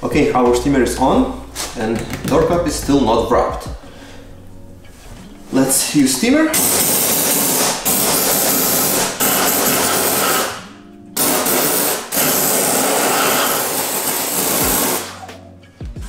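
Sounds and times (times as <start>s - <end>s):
steam cleaner hissing: 6.5s - 10.6s, 11.2s - 15.2s.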